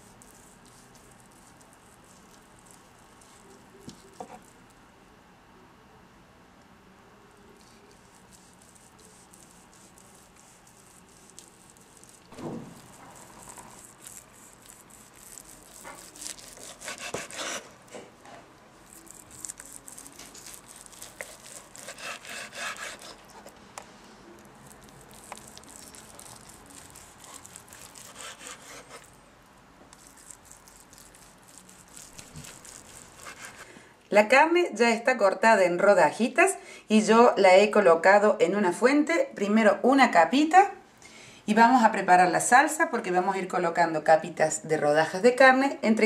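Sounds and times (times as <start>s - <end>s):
knife sawing through meat: 7.9s - 17.7s, 18.9s - 23.3s, 25.1s - 29.1s, 30.0s - 33.7s.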